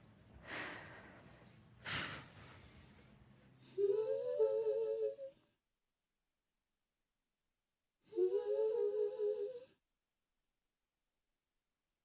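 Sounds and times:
hummed wavering vocal: 8.1s - 9.7s.

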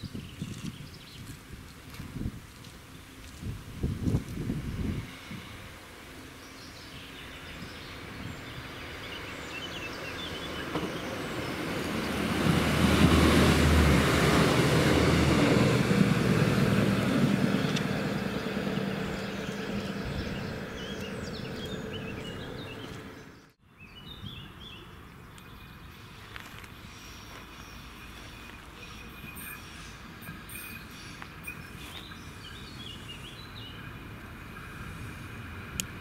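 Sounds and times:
diesel train passing: 1.5s - 23.6s, 25.5s - 36.0s
birds chirping: 6.2s - 12.6s, 16.4s - 34.1s.

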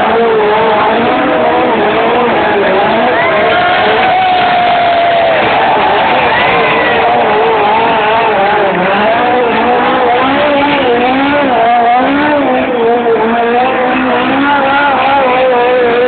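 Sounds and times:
car engine revving high: 0.0s - 16.0s.

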